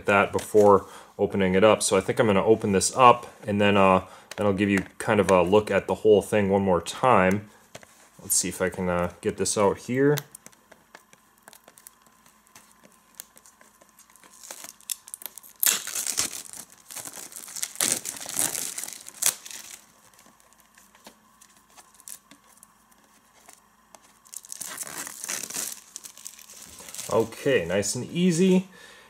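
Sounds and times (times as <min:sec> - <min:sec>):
plastic wrap rustling: 0:09.6 - 0:28.6
plastic shrink wrap tearing: 0:10.0 - 0:27.6.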